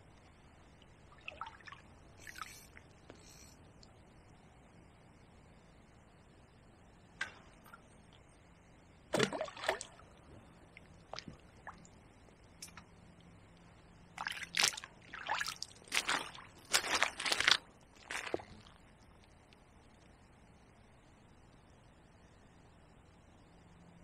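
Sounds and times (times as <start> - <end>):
water sloshing and trickling: 0.6 - 3.0, 9.1 - 19.1
water splashing: 1.1 - 2.6, 9.2 - 10.0, 14.2 - 18.7
footsteps on bank: 15.8 - 18.8.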